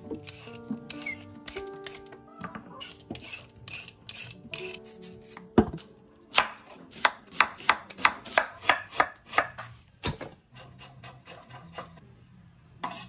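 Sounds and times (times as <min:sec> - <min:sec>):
knife strokes on wooden board: 0:02.8 - 0:05.5, 0:10.5 - 0:12.0
dull thump on cutting board: 0:05.6 - 0:05.8.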